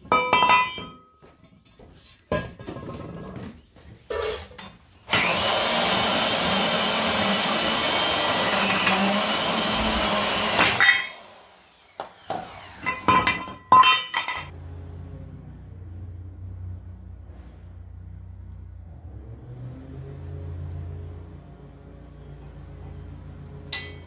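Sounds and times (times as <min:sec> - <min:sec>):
metallic clanks of steel pieces: 0:00.0 - 0:02.9, 0:10.6 - 0:11.2, 0:12.8 - 0:14.5, 0:23.7 - 0:24.0
angle grinder cutting steel: 0:05.1 - 0:13.6.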